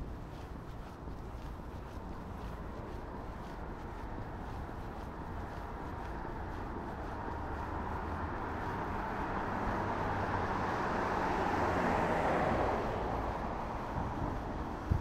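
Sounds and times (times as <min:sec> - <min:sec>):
vehicle passing by: 0:04.2 - 0:15.0.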